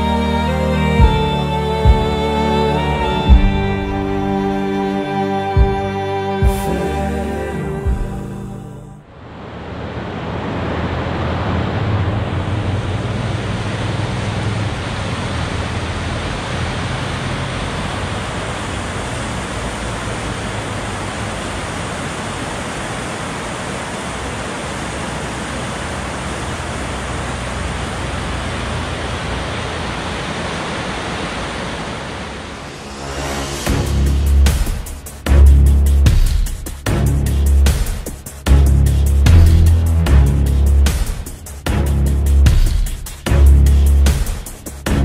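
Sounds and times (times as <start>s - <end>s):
river rapids rushing: 8.6s - 33.7s.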